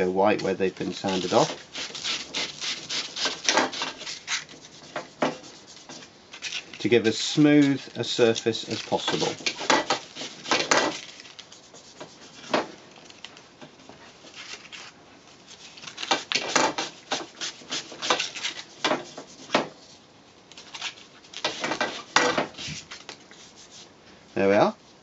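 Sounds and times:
sandpaper rubbing: 0:00.8 - 0:12.6, 0:15.5 - 0:20.0, 0:20.7 - 0:23.9.

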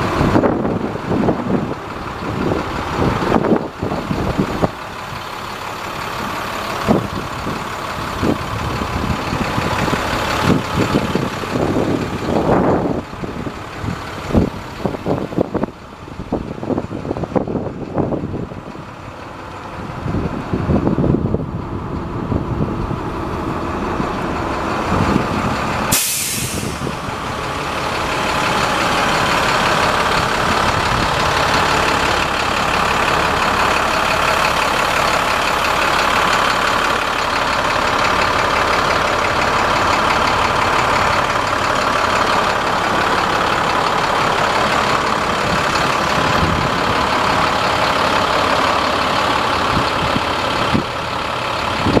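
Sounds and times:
diesel engine running: 0:00.0 - 0:52.0
short sharp hiss: 0:25.9 - 0:26.9.

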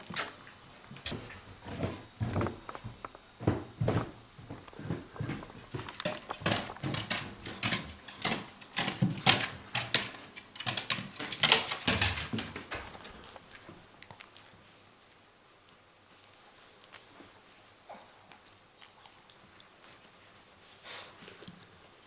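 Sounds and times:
dog paws on wooden stairs: 0:00.9 - 0:13.8.

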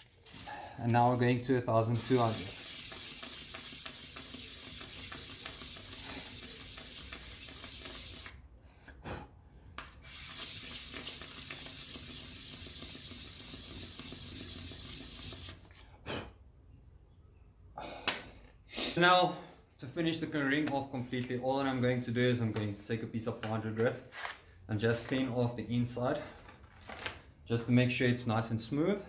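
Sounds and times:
ring rubbed on sandpaper: 0:01.9 - 0:08.3, 0:10.1 - 0:13.9.

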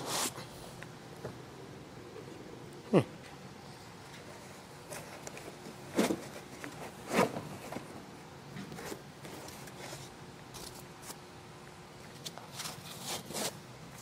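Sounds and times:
foam scraping and rubbing: 0:12.5 - 0:13.6.

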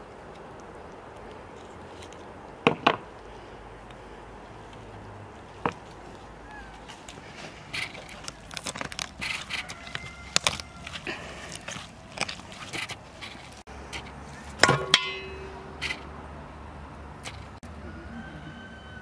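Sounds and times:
hands handling chicken clicks: 0:06.8 - 0:16.0
enamel bowl clanging: 0:14.6 - 0:15.9.

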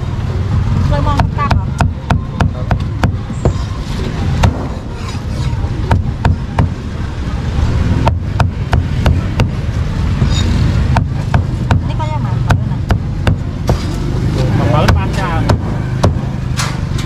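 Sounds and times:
low background rumble: 0:00.0 - 0:17.0
cleaver chopping on a block: 0:14.8 - 0:16.3.

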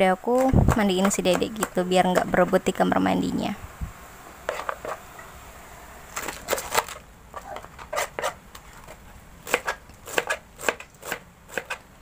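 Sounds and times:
knife slicing cabbage: 0:06.2 - 0:11.8.

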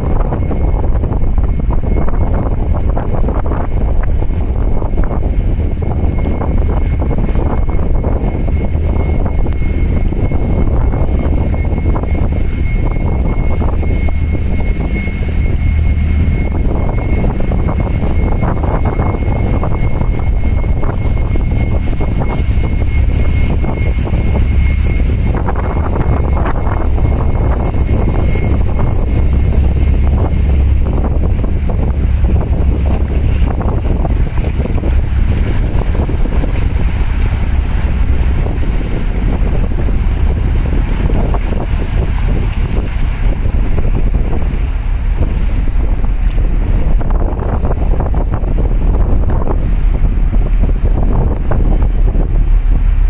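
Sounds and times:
high whine: 0:00.0 - 0:53.0
ship engine rumble: 0:00.0 - 0:53.0
water washing against breakwater: 0:00.0 - 0:53.0
wind buffeting microphone: 0:00.0 - 0:53.0.

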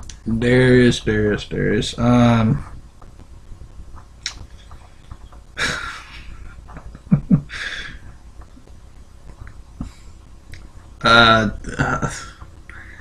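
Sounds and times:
stifled chuckle: 0:05.6 - 0:08.0
man breathing out heavily: 0:07.5 - 0:08.0.

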